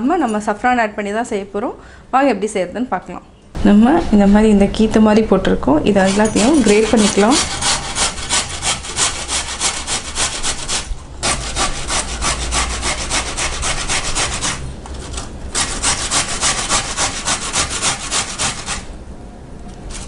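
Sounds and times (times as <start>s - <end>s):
pumpkin grating on box grater: 6.0s - 14.6s, 15.5s - 18.9s.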